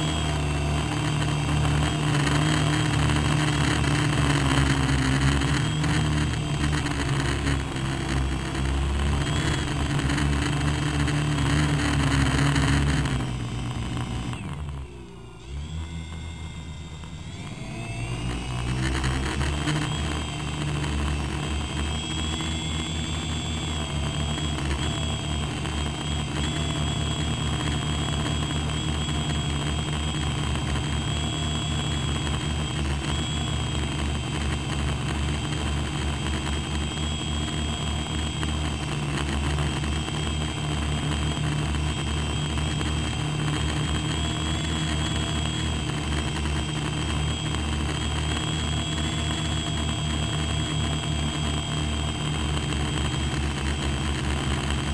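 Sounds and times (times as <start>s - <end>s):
drone motors high whine: 0.0s - 54.9s
low buzzing hum: 0.0s - 54.9s.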